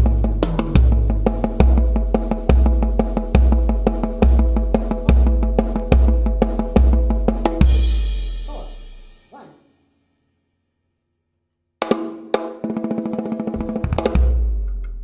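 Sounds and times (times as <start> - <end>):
bass drum beats: 0.0 - 9.1, 13.6 - 15.0.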